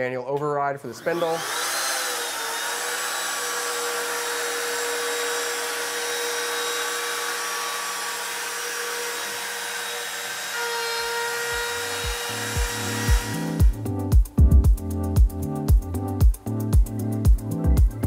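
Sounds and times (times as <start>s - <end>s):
end mill cutting wood: 1.0s - 13.8s
router spindle whining: 1.0s - 13.8s
deep music beats: 11.5s - 18.0s.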